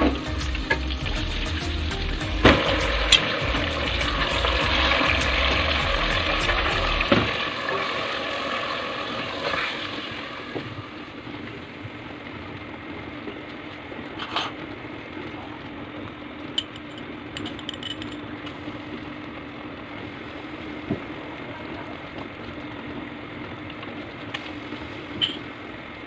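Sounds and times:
meat sizzling in a pot: 0.0 - 17.5, 18.2 - 26.0
spoon clinking against pot: 25.2 - 25.4.

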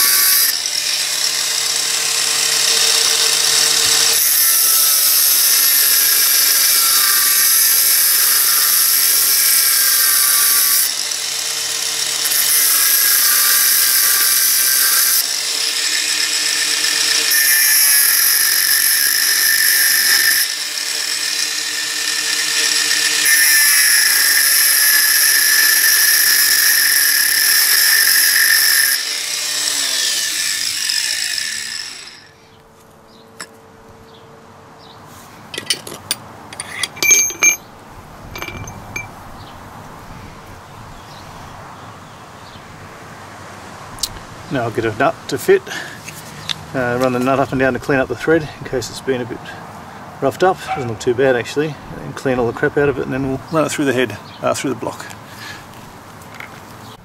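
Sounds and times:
angle grinder cutting steel: 0.0 - 32.4.

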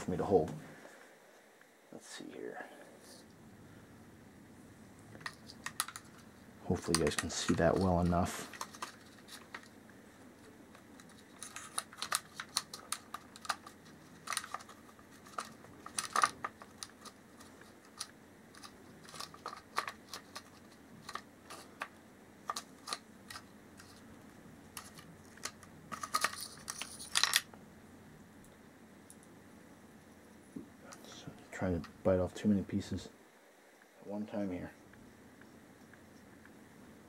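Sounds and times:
clicks and taps of small parts: 5.2 - 6.2.

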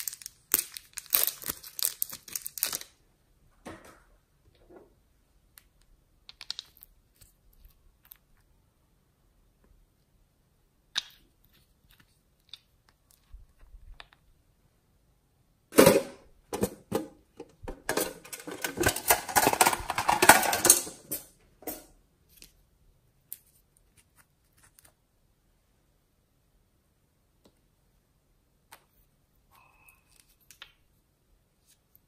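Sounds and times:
plastic containers clicking: 15.8 - 21.8
crackling clicks and rattles: 17.4 - 21.9.

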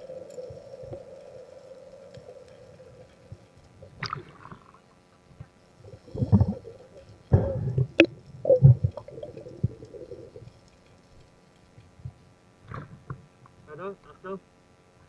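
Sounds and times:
underwater gurgling: 0.0 - 11.3.

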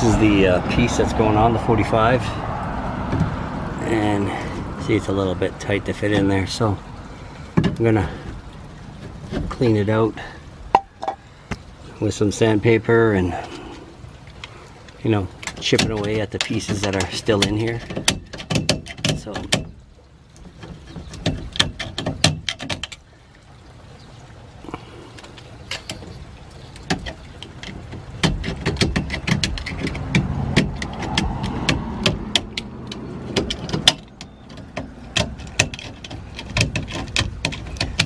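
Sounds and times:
blade scraping plastic pipe: 26.9 - 38.0.

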